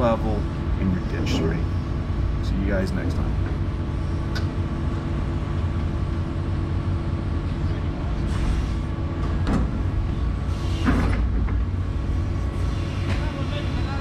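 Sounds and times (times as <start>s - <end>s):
diesel engine low drone: 0.0s - 14.0s.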